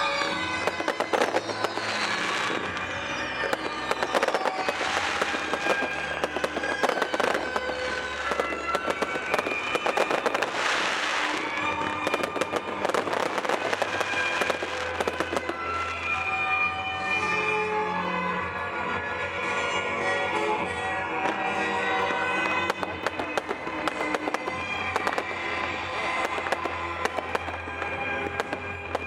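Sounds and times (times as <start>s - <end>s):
fireworks bangs and crackling: 0.0s - 17.5s, 18.5s - 29.0s
music: 0.0s - 29.0s.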